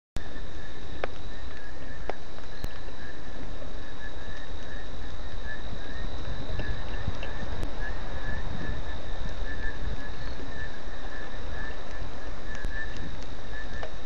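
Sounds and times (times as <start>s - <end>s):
insects trilling: 0.2s - 14.0s
low rumble: 0.2s - 14.0s
pulsing chirp: 0.2s - 14.0s
steady rain falling: 0.2s - 14.0s
sharp clicks: 11.8s - 14.0s.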